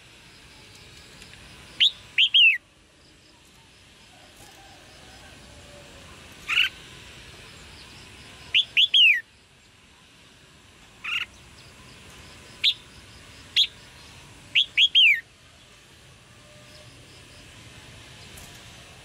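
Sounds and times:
bird calling: 1.8 - 2.6, 6.4 - 6.8, 8.5 - 9.3, 11.0 - 11.4, 14.5 - 15.3.

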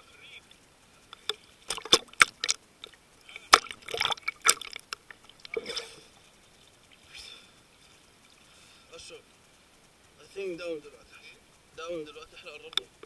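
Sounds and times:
water dripping: 0.4 - 8.6
seawater splashing against camera: 1.2 - 6.0.

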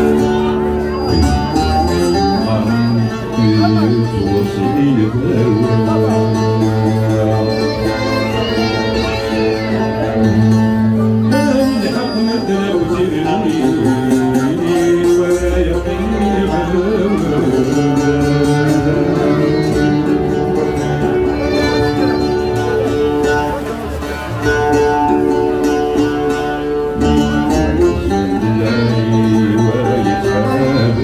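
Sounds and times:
bowed violin: 0.0 - 31.0
oud plucked with a pick: 0.0 - 31.0.

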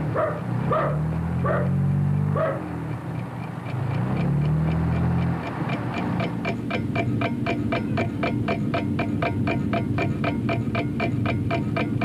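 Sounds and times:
dog barking: 0.0 - 2.8
clock ticking: 0.0 - 12.0.

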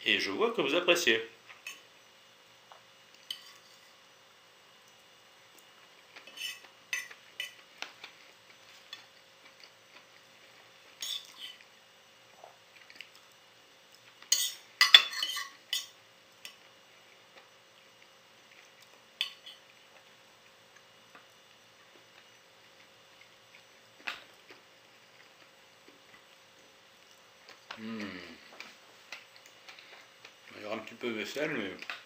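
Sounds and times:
fork and knife clinking on plate: 14.3 - 16.0.

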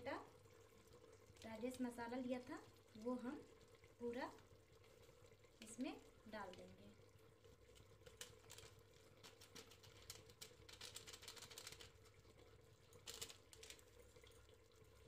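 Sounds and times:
faint steady hum: 0.0 - 15.0
paper packet crinkling and tapping: 7.7 - 12.2, 12.9 - 14.0.

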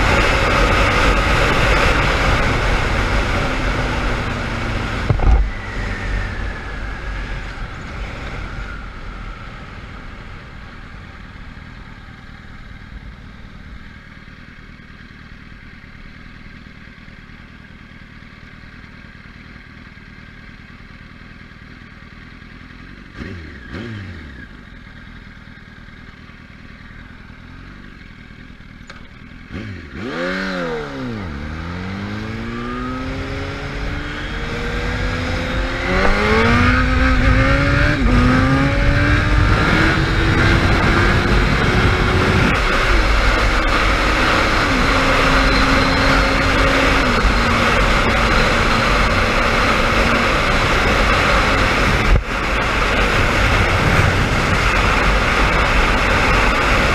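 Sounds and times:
motorcycle engine revving: 0.0 - 56.9
wind on microphone: 35.0 - 48.6, 49.2 - 56.9.

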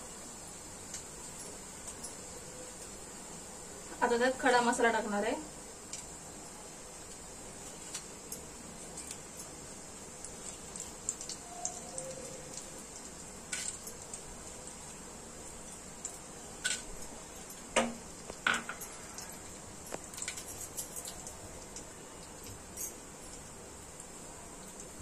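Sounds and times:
faint sizzle with crackles: 0.0 - 25.0
spices tapping against pot: 15.7 - 23.5.

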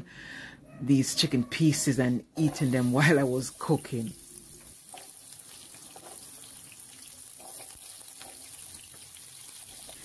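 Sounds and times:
vegetables sizzling in a frying pan: 2.4 - 10.0.

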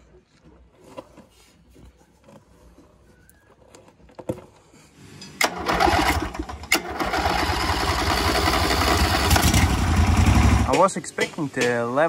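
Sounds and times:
riding mower engine running: 5.4 - 11.7.

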